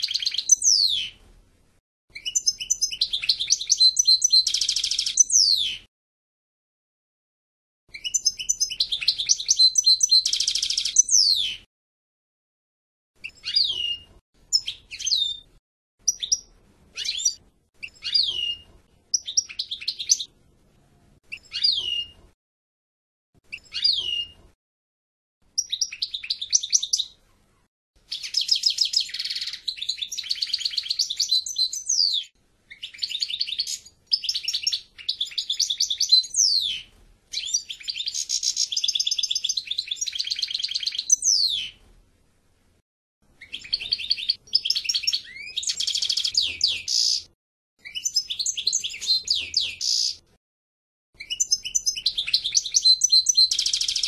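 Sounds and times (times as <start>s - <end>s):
goldfinch singing: 0.0s - 1.2s, 2.2s - 5.8s, 8.0s - 11.6s, 13.2s - 15.4s, 16.0s - 20.3s, 21.3s - 22.2s, 23.5s - 24.4s, 25.6s - 27.2s, 28.1s - 41.8s, 43.4s - 47.3s, 47.9s - 50.2s, 51.2s - 54.0s.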